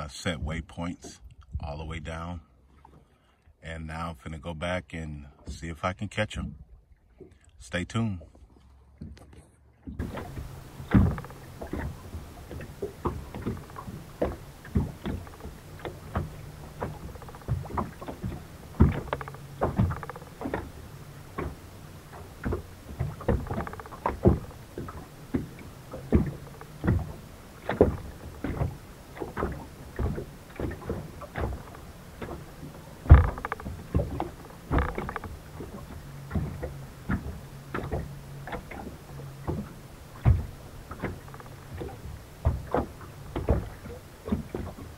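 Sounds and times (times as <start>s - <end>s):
waves slapping against boat hull: 0.0s - 3.3s, 3.9s - 44.9s
low hum: 9.5s - 44.9s.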